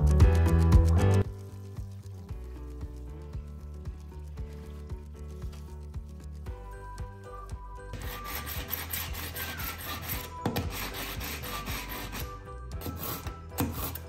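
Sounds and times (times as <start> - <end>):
knife rasping on sharpener: 8.0 - 14.0.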